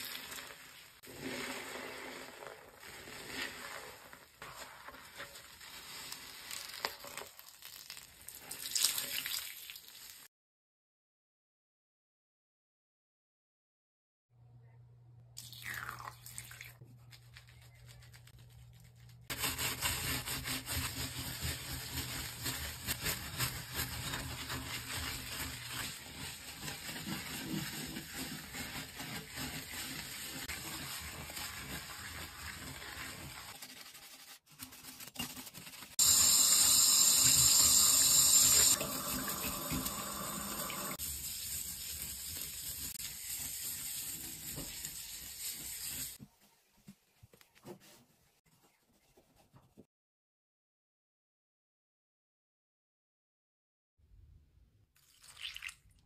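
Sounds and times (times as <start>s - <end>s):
brush scrubbing glass: 17.0s - 46.2s
tap water running into sink: 36.0s - 42.6s.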